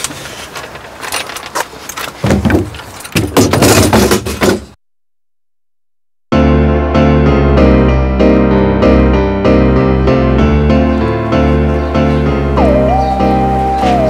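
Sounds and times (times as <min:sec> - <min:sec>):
clattering and rustling: 0:00.0 - 0:04.8
piano music: 0:06.3 - 0:14.0.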